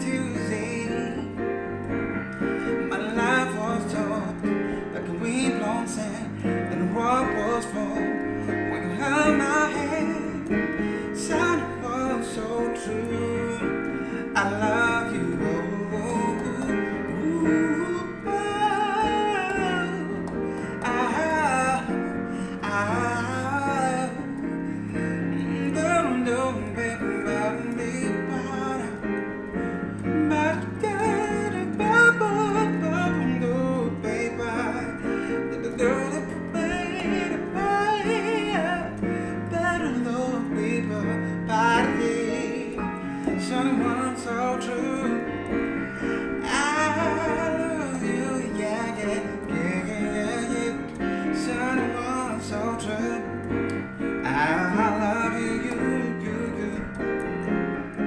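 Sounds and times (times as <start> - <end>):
man singing vocal runs: 0.0 - 1.4, 2.9 - 29.2, 30.0 - 45.4, 46.0 - 53.3, 54.3 - 57.2
electric keyboard chords: 0.0 - 58.0.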